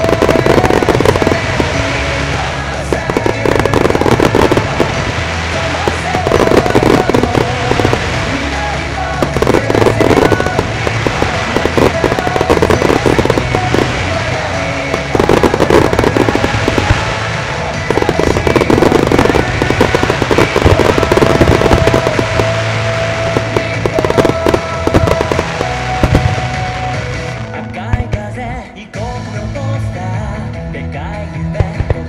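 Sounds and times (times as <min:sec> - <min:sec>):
fireworks bursting and crackling: 0:00.0 - 0:28.8, 0:31.6 - 0:32.0
music playing: 0:00.0 - 0:32.0.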